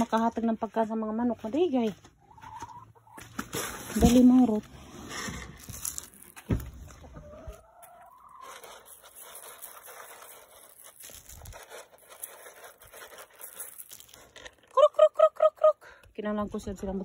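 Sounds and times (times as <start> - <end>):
hen clucking: 2.0 - 3.4, 6.8 - 9.1
thump: 6.5 - 6.8.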